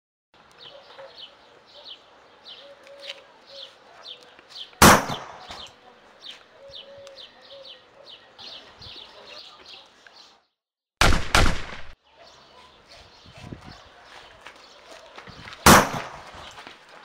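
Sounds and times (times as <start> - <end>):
birds chirping: 0.4 - 10.6, 12.0 - 17.0
loud sharp bang: 11.0 - 12.0, 15.6 - 16.3.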